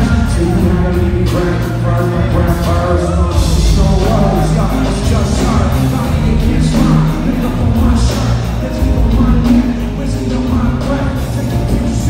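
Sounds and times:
live rock band: 0.0s - 12.0s.

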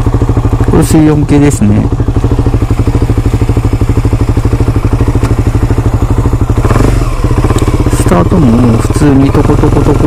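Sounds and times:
motorcycle engine running at low revs: 0.0s - 10.0s.

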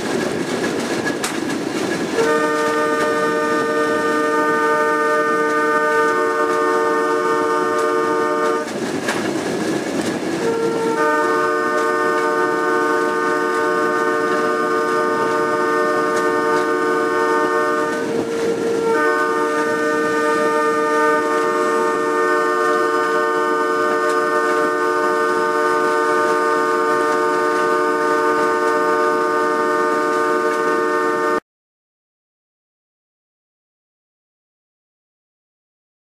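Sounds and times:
railway horn blasts: 2.1s - 8.8s, 10.3s - 31.4s.

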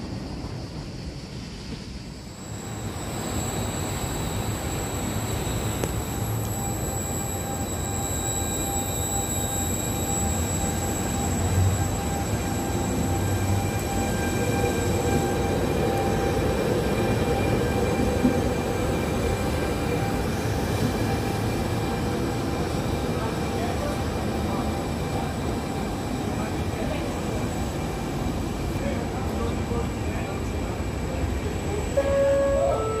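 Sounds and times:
train rumbling on rails: 0.0s - 33.0s.

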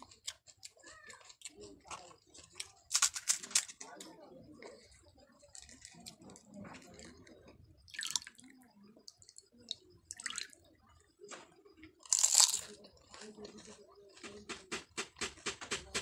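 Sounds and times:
crisp food crunch: 0.0s - 4.1s, 4.8s - 8.4s, 12.0s - 15.5s
water dripping and splashing in bowl: 7.9s - 8.5s, 9.1s - 10.6s.

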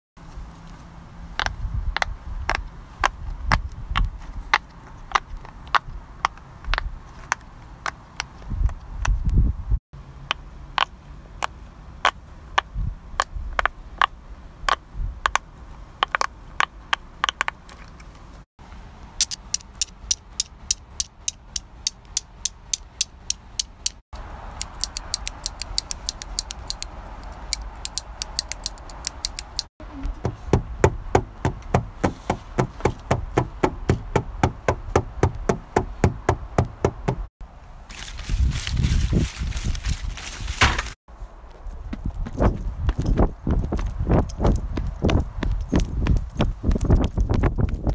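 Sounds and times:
fast even clicking: 19.2s - 29.7s.

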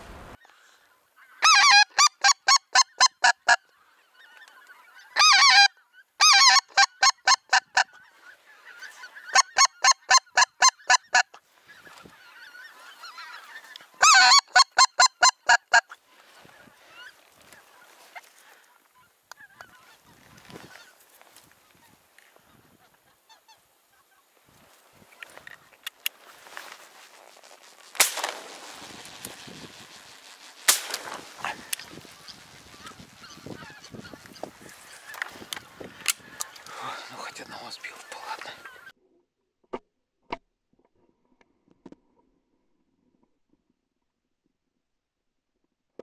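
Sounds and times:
goose honking: 1.2s - 3.6s, 4.6s - 11.3s, 11.9s - 21.0s, 28.9s - 37.1s.

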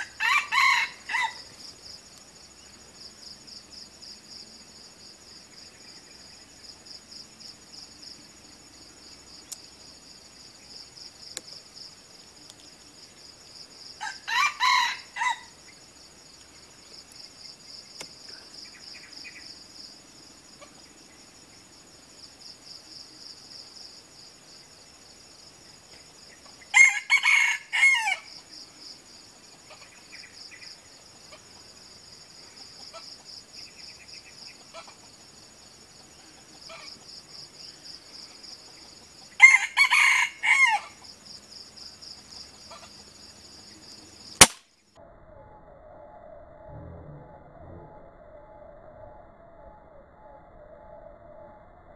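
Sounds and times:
rooster crowing: 0.0s - 1.5s, 14.0s - 15.6s, 26.7s - 28.4s, 39.3s - 41.0s
high insect drone: 0.0s - 46.7s.

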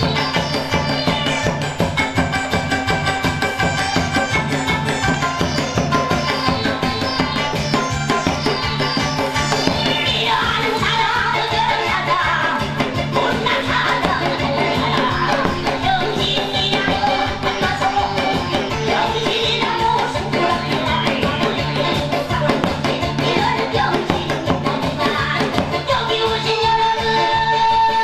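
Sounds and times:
music with singing: 0.0s - 28.0s
hourglass drum beaten fast: 12.6s - 26.0s.

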